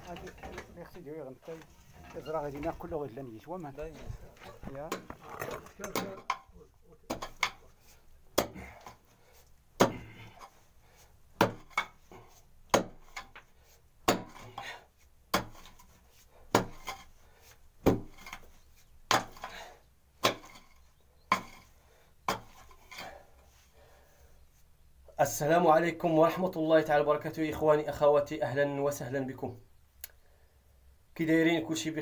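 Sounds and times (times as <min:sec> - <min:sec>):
pick striking hard earth: 0:09.8 - 0:10.2, 0:14.0 - 0:14.6.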